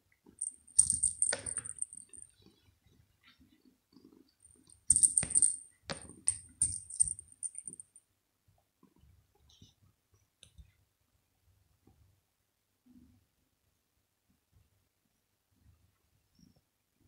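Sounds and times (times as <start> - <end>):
small bell jingling in toy ball: 0.4 - 2.3, 4.9 - 8.0.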